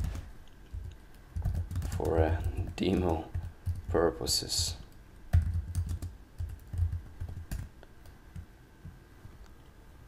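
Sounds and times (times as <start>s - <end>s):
typing on computer keyboard: 0.0s - 3.9s, 5.3s - 7.7s.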